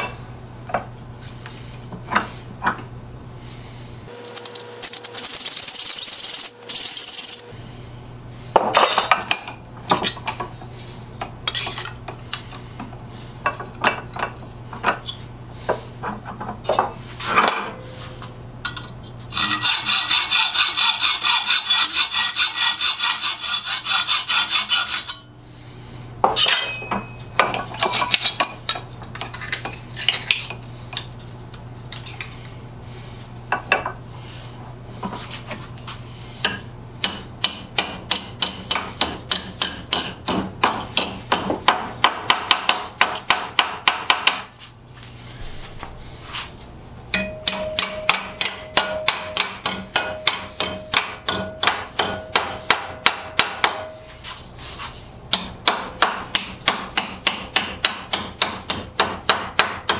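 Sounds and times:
hacksaw cutting metal: 4.2 - 7.5, 19.3 - 25.3.

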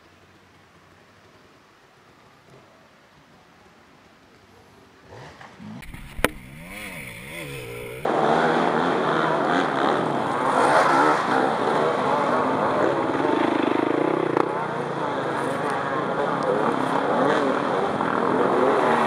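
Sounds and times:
dirt bike engines revving: 5.0 - 19.0
sharp crack: 5.2 - 8.1.

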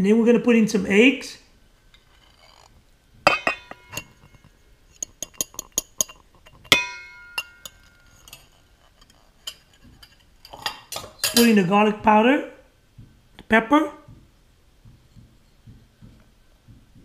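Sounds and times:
steel bowl ringing: 3.3 - 4.5, 6.7 - 8.6
bowls clinking on steel bowl rim: 3.3 - 11.6.

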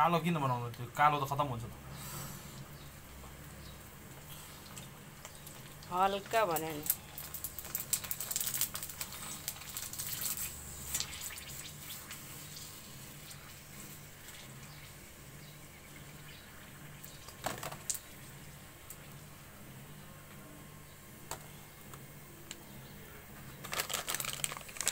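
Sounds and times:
dough deep-frying in hot oil: 0.0 - 19.6.

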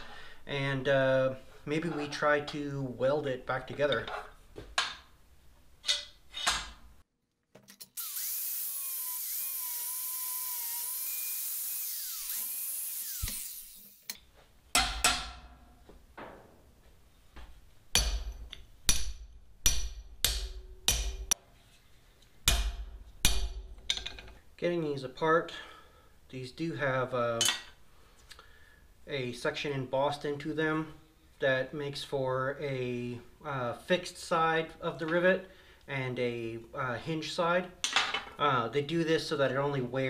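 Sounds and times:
power tool whining on steel: 7.9 - 14.1.

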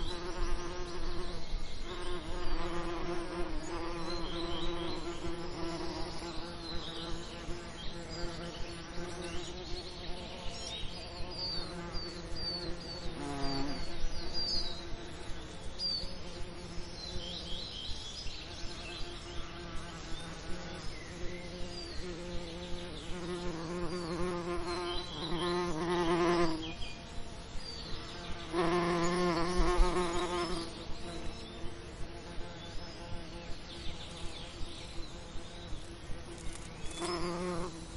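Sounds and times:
bees buzzing: 0.0 - 17.6, 18.5 - 26.8, 27.8 - 37.9.

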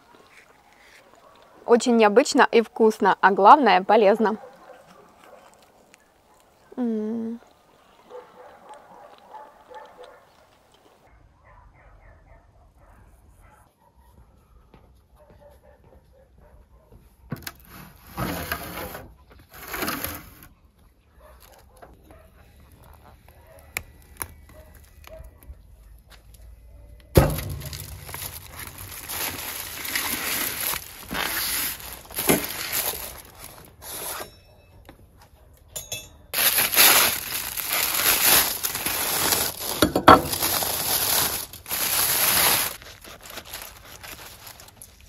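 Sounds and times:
aluminium foil crinkling and tearing: 4.6 - 6.0, 22.6 - 25.4, 27.2 - 34.3, 36.3 - 45.0
sudden thump: 27.2 - 28.7
faint metal clinks: 35.7 - 36.3.

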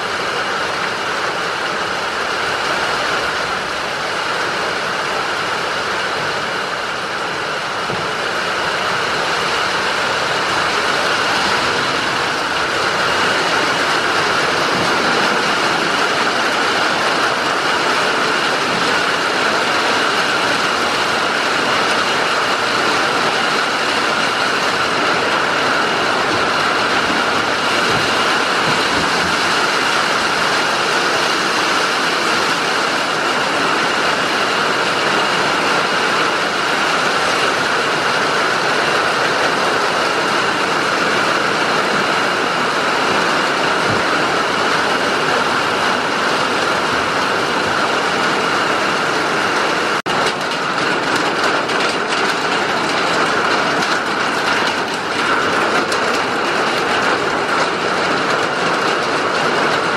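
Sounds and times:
heavy rain falling: 0.0 - 59.9.

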